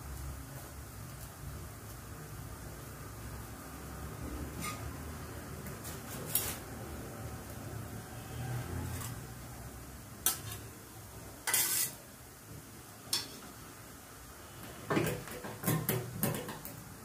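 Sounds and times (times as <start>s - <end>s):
metal spatula scraping a pan: 4.5s - 5.0s, 8.3s - 9.4s, 10.2s - 10.8s, 11.4s - 12.1s.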